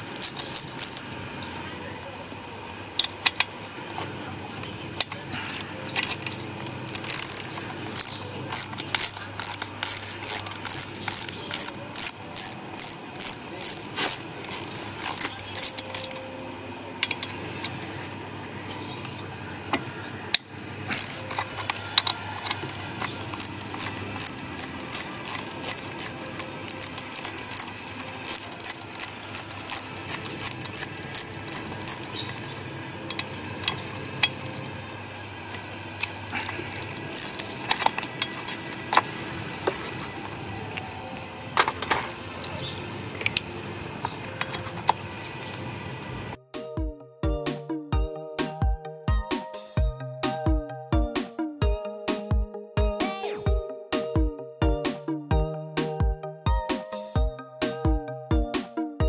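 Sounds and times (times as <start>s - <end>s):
ratchet wrench clicking: 0.0s - 1.1s, 5.4s - 6.3s, 6.9s - 16.2s, 20.9s - 34.7s, 36.0s - 39.1s.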